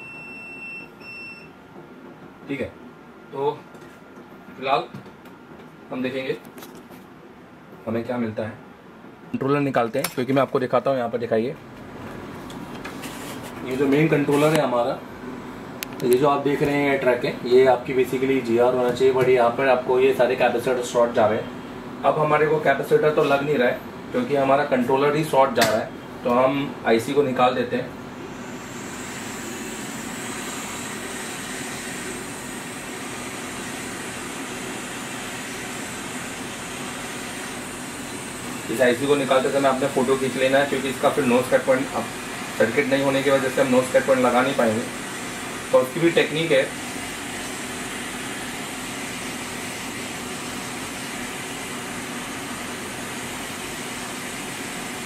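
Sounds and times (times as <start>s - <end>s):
hot air station blowing: 28.0s - 55.0s.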